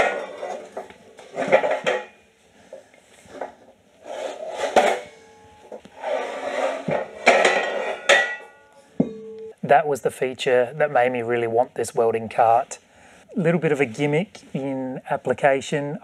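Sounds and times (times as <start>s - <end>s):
metal scraping on concrete floor: 0.0s - 2.2s, 3.3s - 8.7s.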